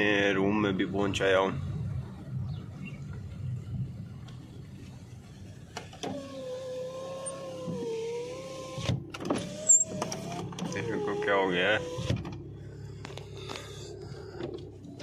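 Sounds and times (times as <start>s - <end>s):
low car cabin hum: 0.0s - 15.0s
electric car window motor whining: 5.8s - 15.0s.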